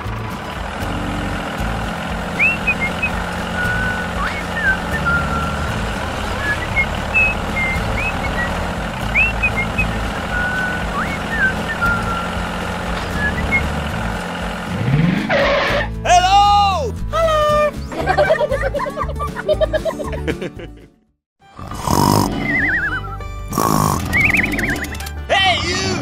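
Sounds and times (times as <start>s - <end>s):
tractor engine rumbling: 0.0s - 16.2s, 21.4s - 25.3s
bird chirps: 2.3s - 5.8s, 6.4s - 12.4s, 13.0s - 13.8s, 24.0s - 25.0s.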